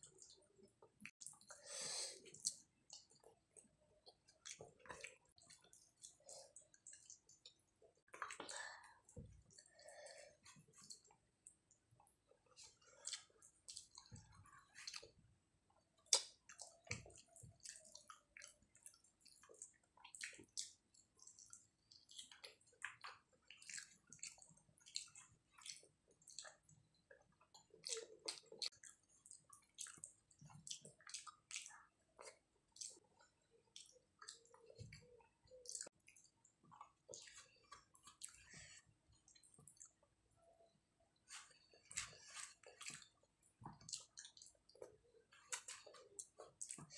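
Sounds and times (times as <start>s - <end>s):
person chewing with mouth clicks: 0.0s - 11.8s, 12.4s - 15.2s, 15.8s - 40.0s, 41.2s - 46.9s.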